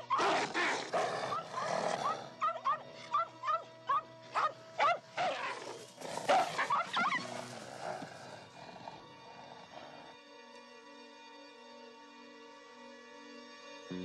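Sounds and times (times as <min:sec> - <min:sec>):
animal yelping: 0:00.0 - 0:10.2
background music: 0:00.0 - 0:14.0.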